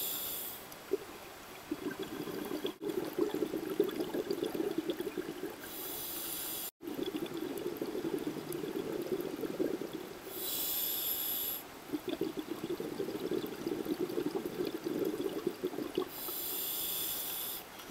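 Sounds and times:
regulator hissing inhale: 0:00.0 - 0:00.7, 0:05.6 - 0:06.7, 0:10.2 - 0:11.7, 0:16.1 - 0:17.7
bubbling exhalations underwater: 0:01.6 - 0:05.7, 0:06.8 - 0:10.3, 0:11.9 - 0:16.1.

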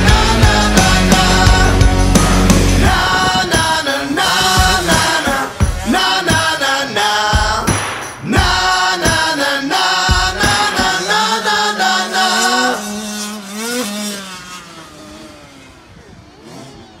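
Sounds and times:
country rock song: 0:00.0 - 0:12.8.

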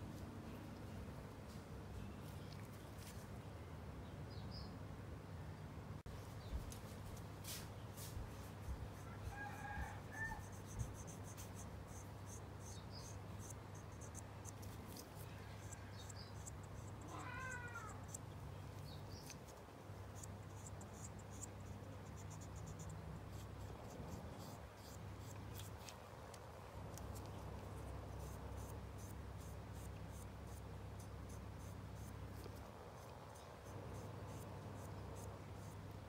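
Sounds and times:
cotton swab scratching plastic: 0:08.4 - 0:35.8.

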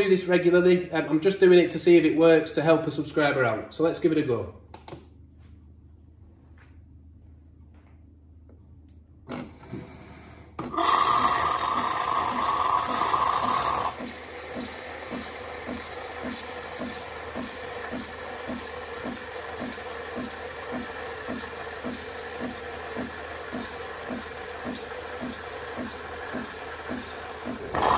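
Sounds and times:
milk frother hissing and pulsing: 0:09.6 - 0:27.9.

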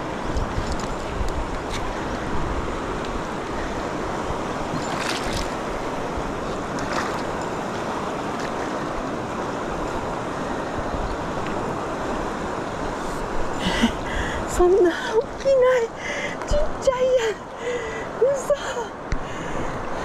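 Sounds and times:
river rapids rushing: 0:00.0 - 0:15.0.

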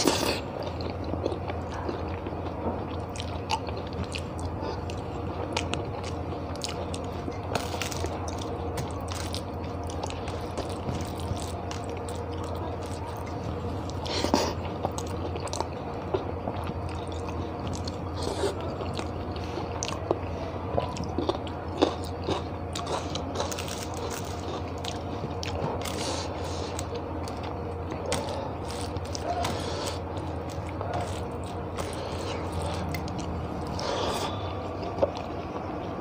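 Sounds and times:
close-up chewing: 0:00.0 - 0:36.0
crunchy bites: 0:20.9 - 0:35.3
low hum: 0:22.5 - 0:36.0.

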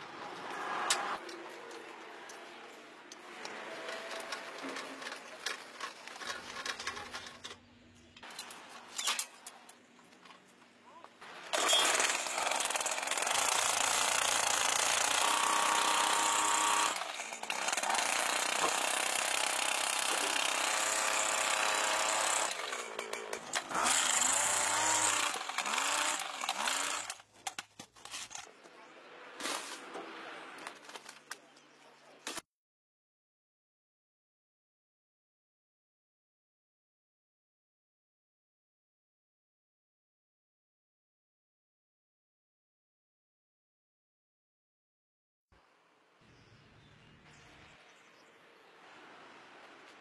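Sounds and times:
jackhammer running: 0:11.5 - 0:27.2.

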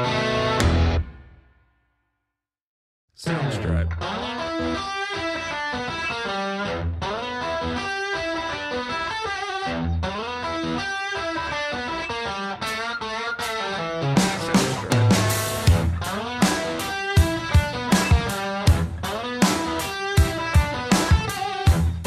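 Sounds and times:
electric guitar instrumental: 0:00.0 - 0:01.4, 0:03.2 - 0:22.0.

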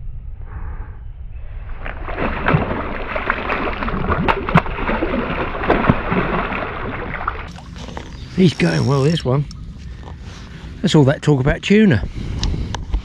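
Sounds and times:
water splashing and sloshing: 0:01.7 - 0:10.7.

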